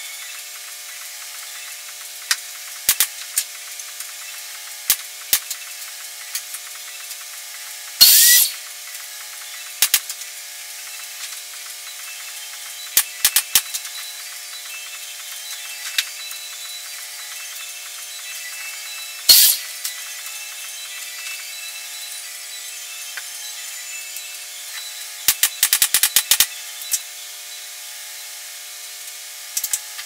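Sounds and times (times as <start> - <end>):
air hiss: 8.0 - 8.6, 19.3 - 19.7
pin nailer shots: 8.0 - 8.6, 19.3 - 19.7.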